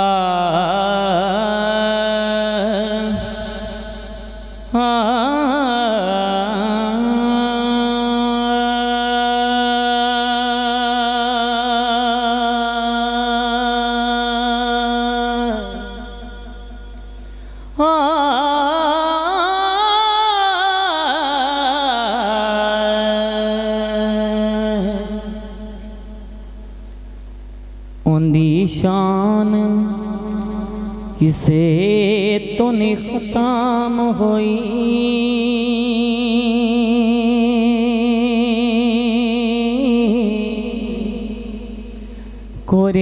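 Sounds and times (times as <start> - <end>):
man singing: 4.7 - 16.3, 28.1 - 41.7.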